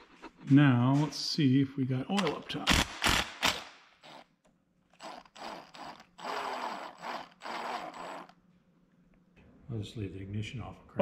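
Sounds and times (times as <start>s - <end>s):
electric starter cranking engine: 3.0s - 4.3s, 4.9s - 8.4s.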